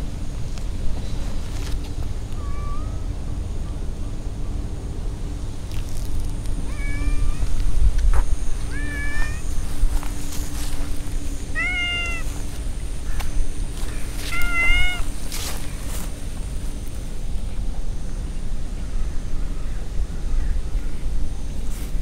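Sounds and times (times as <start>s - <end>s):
cat meowing: 2.4s - 3.1s, 6.7s - 7.5s, 8.7s - 9.5s, 11.5s - 12.3s, 14.1s - 15.1s.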